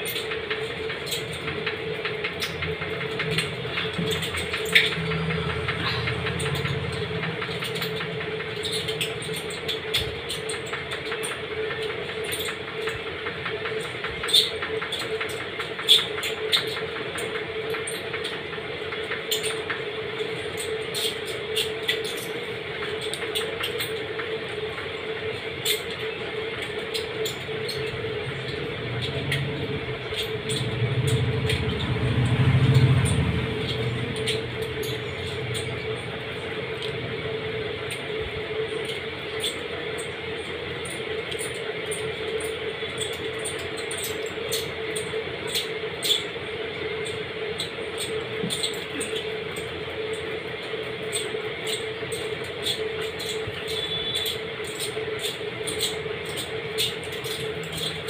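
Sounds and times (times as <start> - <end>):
steady droning hum: 0.0 - 58.0
low rumble: 28.6 - 36.9.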